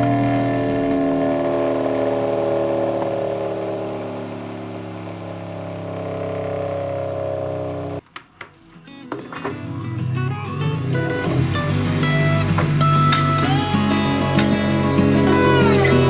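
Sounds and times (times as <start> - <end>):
electric motor humming: 0.0 - 8.0.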